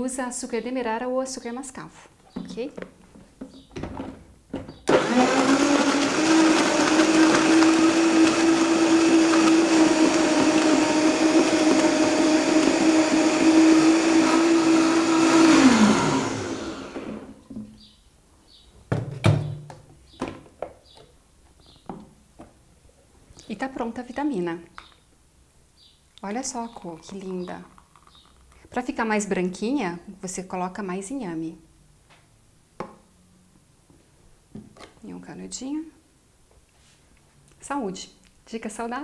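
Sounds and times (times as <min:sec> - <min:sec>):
blender crushing ice: 0:04.9 - 0:17.4.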